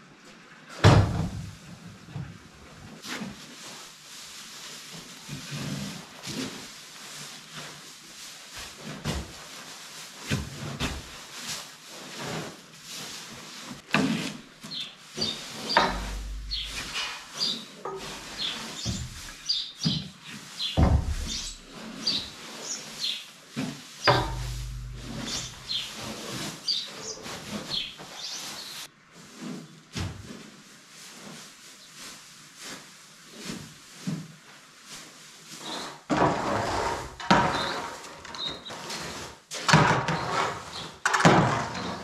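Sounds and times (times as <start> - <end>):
straw rustling and swishing: 3.0 - 33.9
small birds chirping: 14.7 - 23.3, 24.0 - 28.9
pitchfork scraping on concrete: 15.2 - 19.9, 20.6 - 22.8, 24.0 - 27.9, 35.7 - 42.0.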